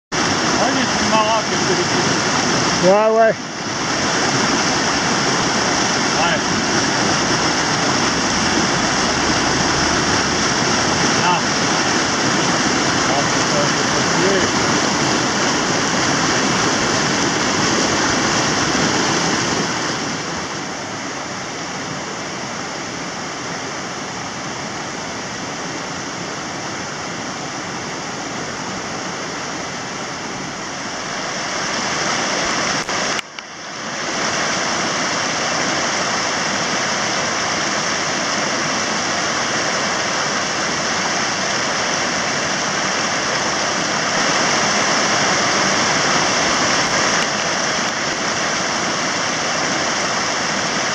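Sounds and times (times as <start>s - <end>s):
water rushing over boulders: 0.1s - 50.9s.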